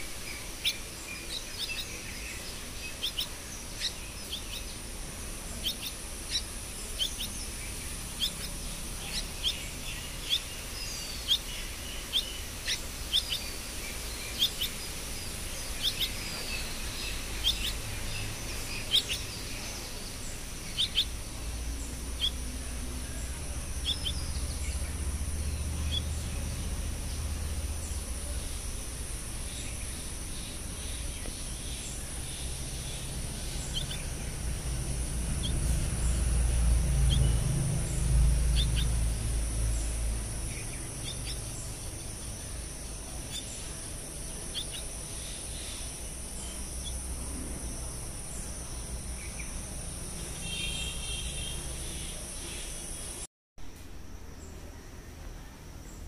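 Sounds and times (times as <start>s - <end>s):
bird chicks chirping: 0.0s - 47.1s
steady high hiss: 0.0s - 56.0s.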